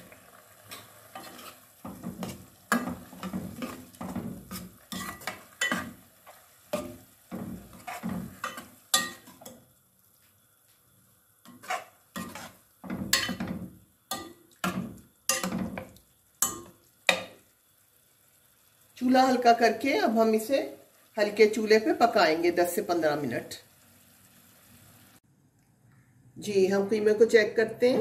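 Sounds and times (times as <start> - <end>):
ladle scraping metal pot: 0.7 - 9.5, 11.5 - 15.6.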